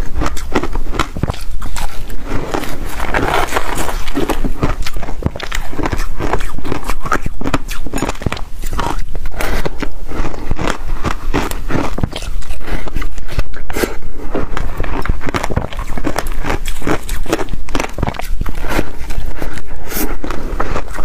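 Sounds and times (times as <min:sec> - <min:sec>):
ice crunching being chewed: 0:00.0 - 0:21.0.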